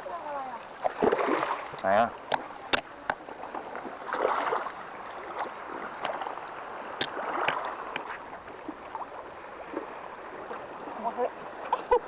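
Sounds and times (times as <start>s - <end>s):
waves lapping against rocks: 0.0s - 12.0s.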